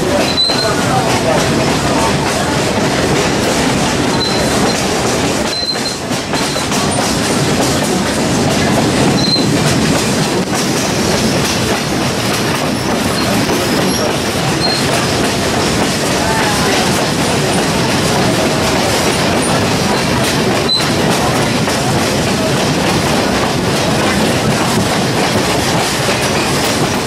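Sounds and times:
moving vehicle rumble and rattle: 0.0s - 27.0s
high squeaks: 4.1s - 4.9s, 5.5s - 6.6s, 9.2s - 9.6s.

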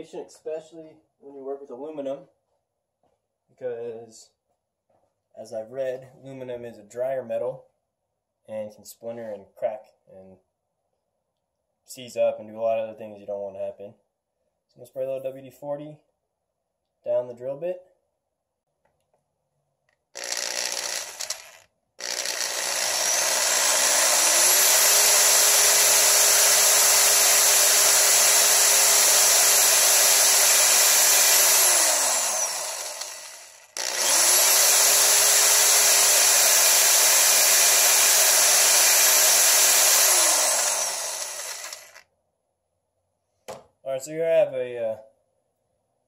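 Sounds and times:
electric drill whining: 20.2s - 42.0s.

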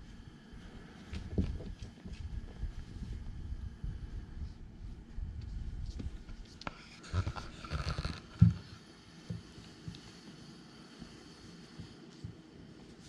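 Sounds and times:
kittens scuffling on a cushion: 0.6s - 13.0s
dull thumps: 7.2s - 10.0s.

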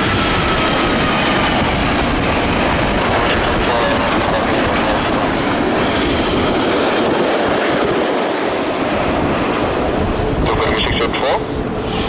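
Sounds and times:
jet engine noise: 0.0s - 12.0s.

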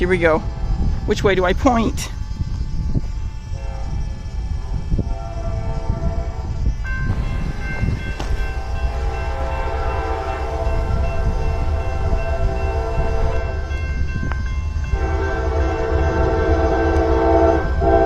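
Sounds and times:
low rumble of passing train: 0.0s - 18.0s
locomotive air horn: 3.4s - 13.7s, 14.9s - 18.0s.

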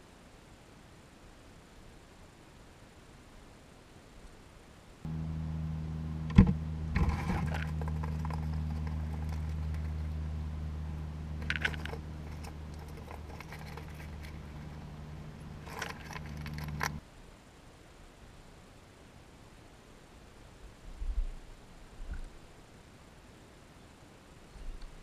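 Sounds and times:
low hum: 5.0s - 17.0s
chipmunk handling peanut shells: 7.4s - 10.2s, 11.4s - 14.8s, 15.4s - 17.0s.

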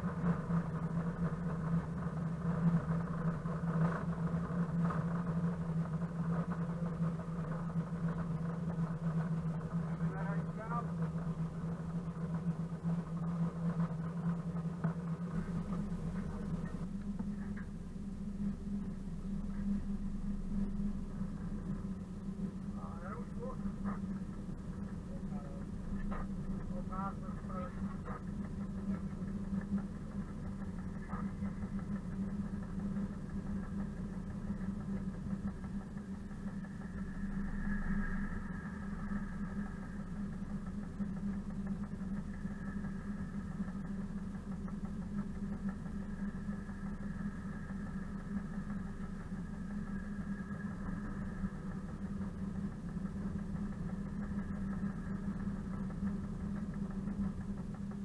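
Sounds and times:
diesel locomotive engine running: 0.0s - 58.0s.

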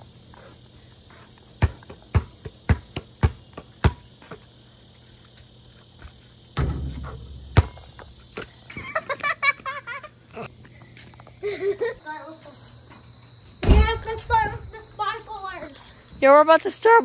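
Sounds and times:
crickets chirring: 0.0s - 17.0s
basketball bouncing on pavement: 1.5s - 4.5s, 6.6s - 8.6s
ball hitting hoop and backboard: 1.6s - 4.4s, 6.6s - 8.5s, 13.6s - 14.0s.

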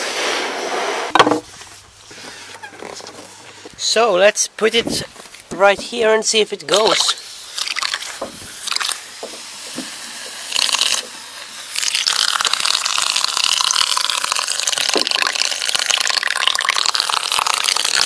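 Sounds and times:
sputtering hiss of air and water: 6.7s - 18.0s.

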